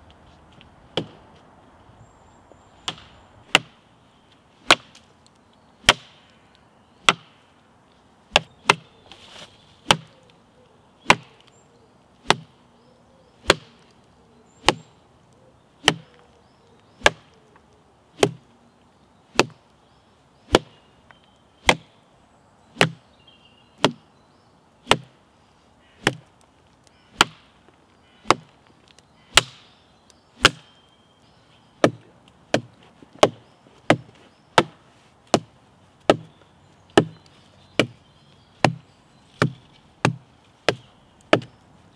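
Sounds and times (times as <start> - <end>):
wooden chopping blows: 8.3 - 8.9, 9.8 - 10.2, 11.0 - 11.5, 12.2 - 12.6, 13.4 - 13.9, 14.6 - 14.9, 15.8 - 16.2, 17.0 - 18.4, 21.6 - 21.9, 22.8 - 23.0, 24.8 - 25.2, 26.0 - 26.3, 27.1 - 27.6, 28.2 - 28.6, 29.3 - 29.7, 30.4 - 30.7, 31.8 - 36.3, 36.9 - 38.0, 38.6 - 38.8, 39.4 - 41.6.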